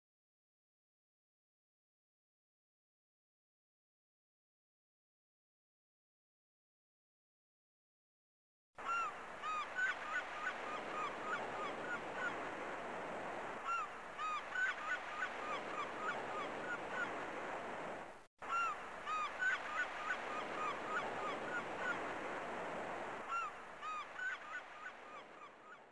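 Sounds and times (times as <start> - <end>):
surf: 8.8 - 25.9.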